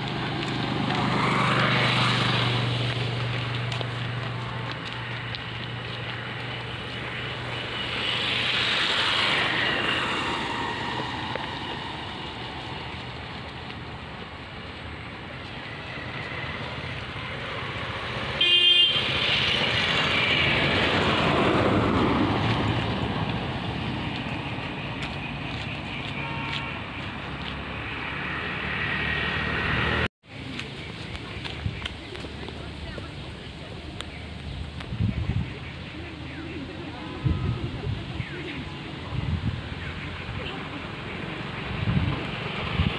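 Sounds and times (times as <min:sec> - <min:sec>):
vehicles passing by: 0:00.0 - 0:42.9
horn honk: 0:18.4 - 0:20.5, 0:26.1 - 0:26.9.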